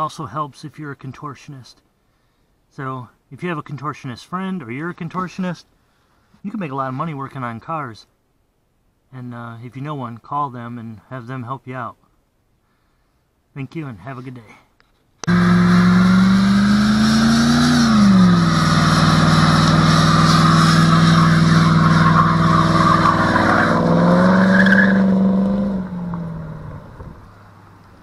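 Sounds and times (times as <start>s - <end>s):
car engine revving high: 15.2s - 27.3s
tyres squealing: 18.1s - 25.4s.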